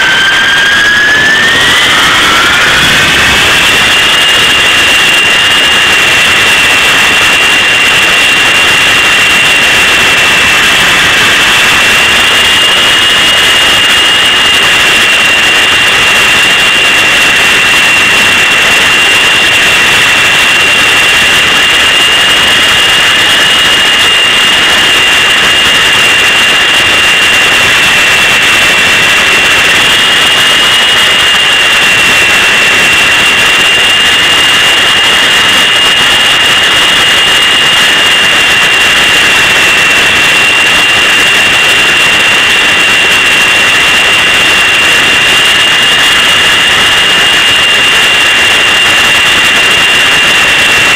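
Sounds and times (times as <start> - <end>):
rotor noise: 0.0 - 7.4
model helicopter whine: 0.0 - 50.9.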